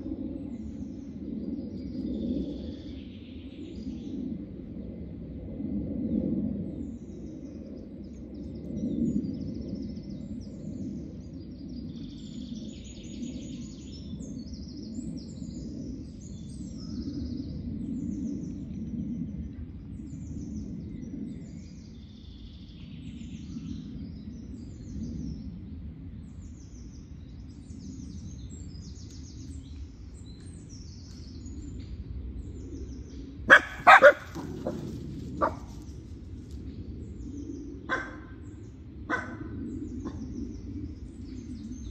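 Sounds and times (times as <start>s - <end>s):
songbirds singing: 0.0s - 41.9s
steady low rumble: 0.0s - 41.9s
dog barking: 33.5s - 34.8s, 37.9s - 38.3s, 39.1s - 39.5s.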